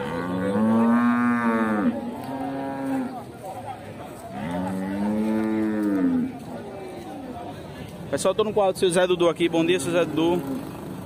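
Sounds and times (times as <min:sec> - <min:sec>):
cattle mooing: 0:00.0 - 0:03.2, 0:04.4 - 0:06.3.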